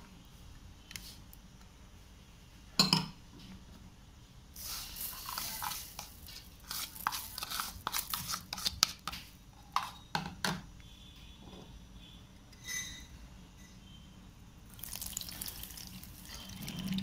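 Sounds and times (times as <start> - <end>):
sugar sliding out of a plastic cup: 4.6 - 9.0
plastic spoon scraping and tapping: 5.2 - 10.0.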